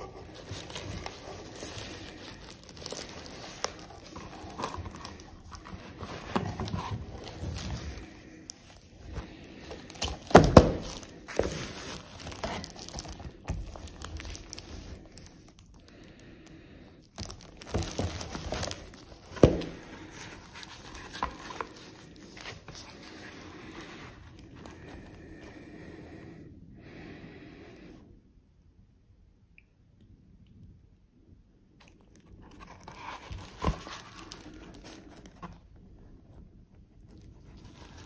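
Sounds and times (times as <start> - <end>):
plastic case crinkling and rustling: 0.0 - 15.9, 17.1 - 25.1, 32.2 - 35.6.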